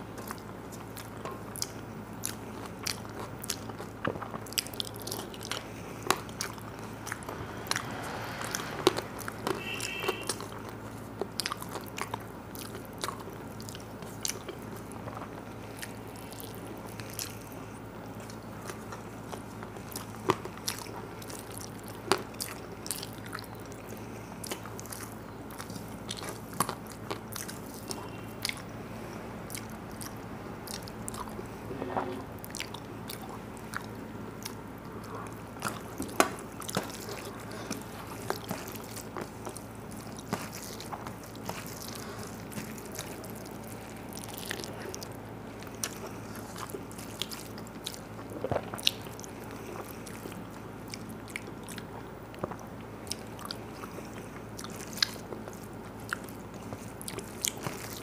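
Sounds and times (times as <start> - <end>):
food crunching: 0.0 - 28.8, 29.4 - 58.0
person chewing food: 0.0 - 58.0
steady low hum: 0.0 - 58.0.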